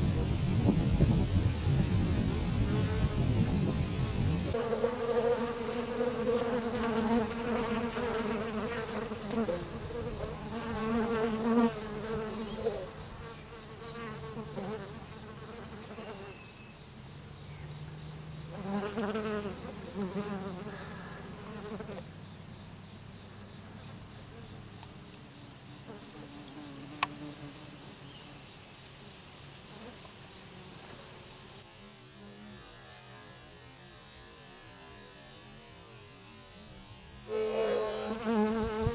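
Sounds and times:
honeybees buzzing: 0:00.0 - 0:22.1, 0:36.4 - 0:38.9.

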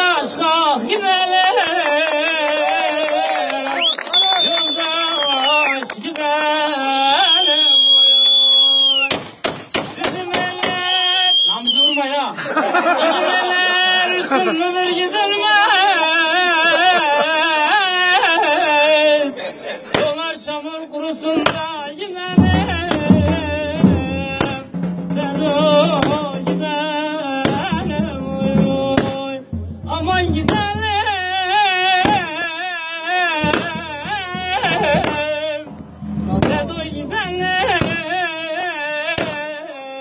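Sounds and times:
sharp struck beats: 0:09.1 - 0:10.9, 0:22.3 - 0:32.4, 0:33.4 - 0:38.3
folk singing with wavering notes: 0:12.8 - 0:40.0
low held notes: 0:33.4 - 0:38.4.

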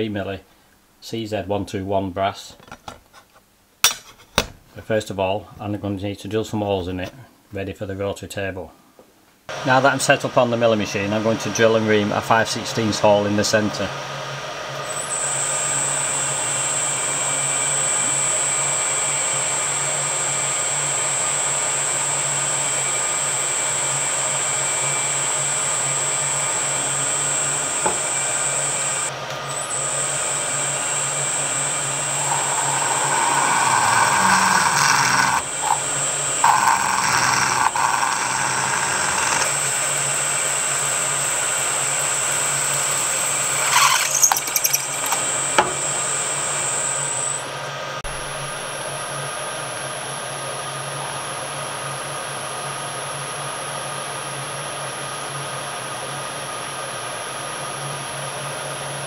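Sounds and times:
milling spindle whine and hum: 0:11.0 - 0:52.5
rough drill cutting noise: 0:14.8 - 0:47.5.

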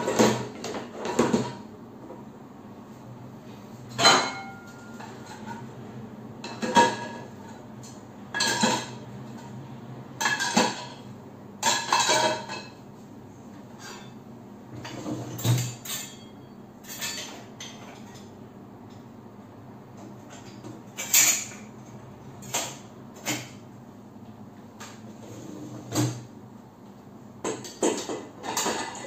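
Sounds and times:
dishes clattering in a dishwasher rack: 0:00.0 - 0:01.7, 0:03.9 - 0:05.7, 0:06.4 - 0:09.5, 0:10.2 - 0:12.9, 0:13.6 - 0:18.3, 0:20.1 - 0:23.6, 0:24.8 - 0:26.3, 0:27.4 - 0:29.0.

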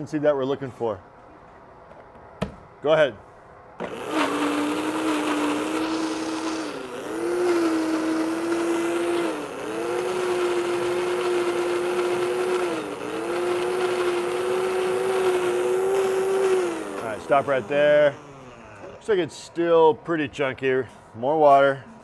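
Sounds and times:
blender motor running: 0:03.8 - 0:19.0.

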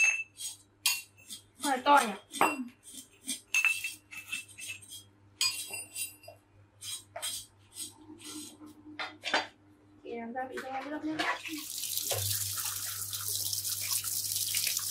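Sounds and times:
knives cutting on wooden board: 0:06.8 - 0:08.5.

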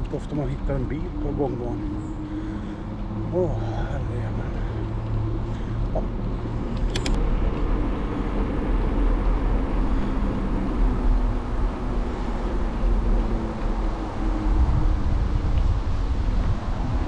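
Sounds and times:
faint engine hum: 0:00.0 - 0:17.0
road traffic rumble: 0:00.0 - 0:17.0
sharp clicks: 0:06.7 - 0:07.2.

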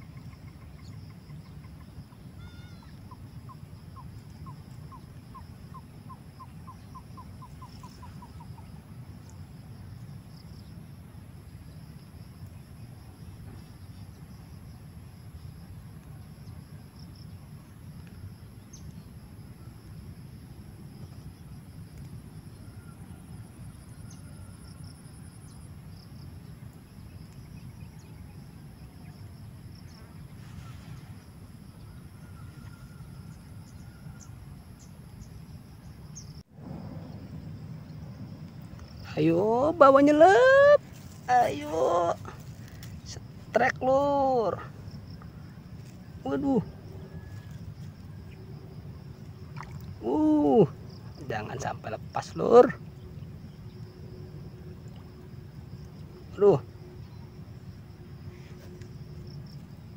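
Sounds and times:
insects trilling: 0:00.0 - 0:59.9
bird calling short notes: 0:02.4 - 0:03.1
steady low rumble: 0:36.3 - 0:40.2.

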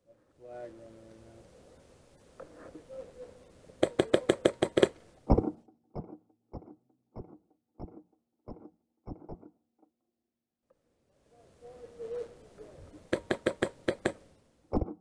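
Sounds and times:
airsoft rifle shots: 0:03.8 - 0:09.5, 0:13.1 - 0:15.0.

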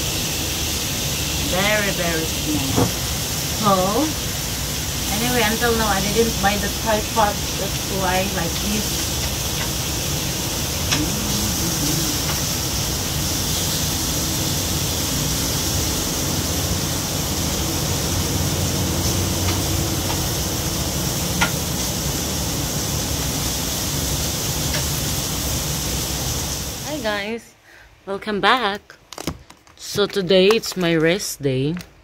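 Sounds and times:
meat sizzling on a grill pan: 0:00.0 - 0:27.0.

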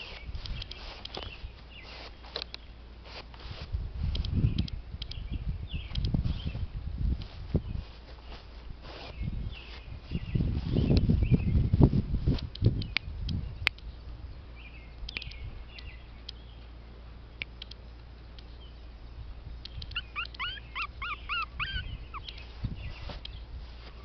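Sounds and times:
light clicks: 0:04.1 - 0:05.2, 0:05.9 - 0:06.2, 0:15.0 - 0:16.4, 0:17.4 - 0:18.5
puppy whimpering: 0:20.0 - 0:22.4.

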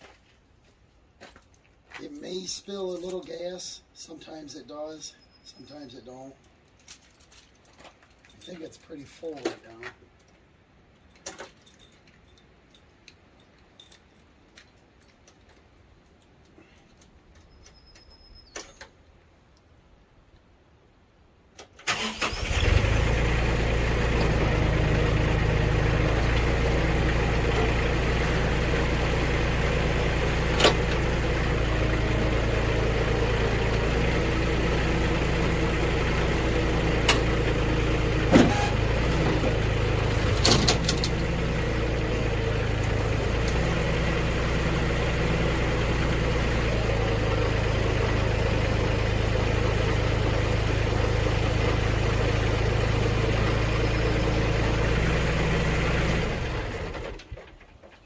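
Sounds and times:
tractor engine running: 0:21.9 - 0:58.0.

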